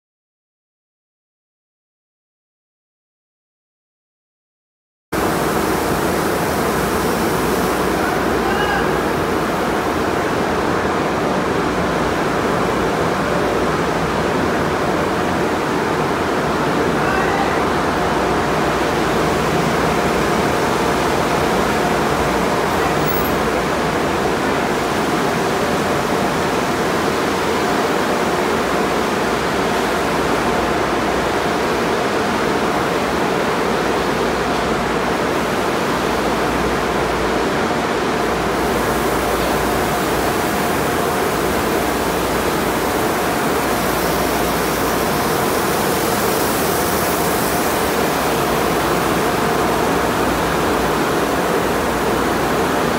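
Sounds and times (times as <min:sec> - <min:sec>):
faint machinery hum: 0:05.2 - 0:52.9
water sprays rushing: 0:38.6 - 0:52.9.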